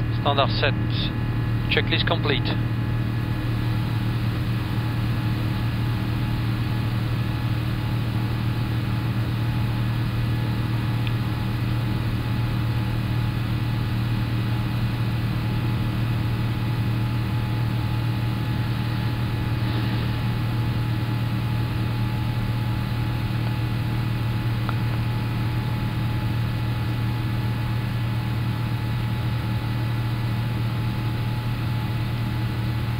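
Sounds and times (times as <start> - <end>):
low cockpit hum: 0.0 - 32.9
rush of air: 18.8 - 20.4.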